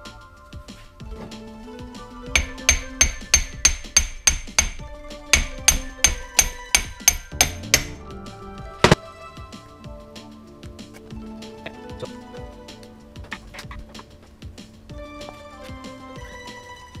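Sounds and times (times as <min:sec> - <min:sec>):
metal-on-metal knocks: 0:02.3 - 0:08.1.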